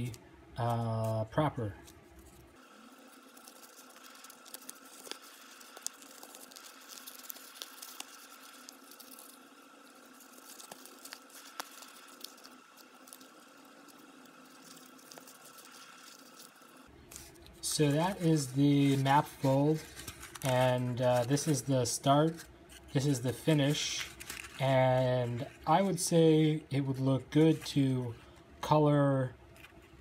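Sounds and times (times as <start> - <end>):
paper crackling and rustling: 2.1 - 26.0
sharp little paper clicks: 10.2 - 13.3.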